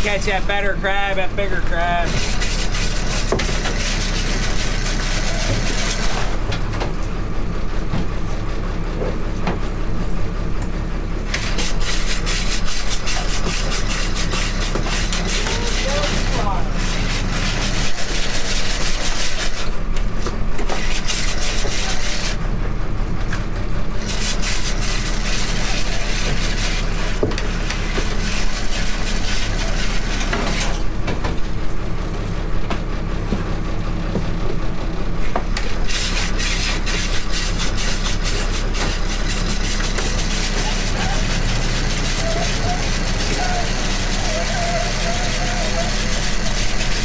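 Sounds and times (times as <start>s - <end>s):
boat engine running: 0.0s - 47.0s
crab pots scraping and rattling: 2.0s - 6.5s, 11.3s - 19.7s, 24.0s - 30.9s, 35.7s - 47.0s.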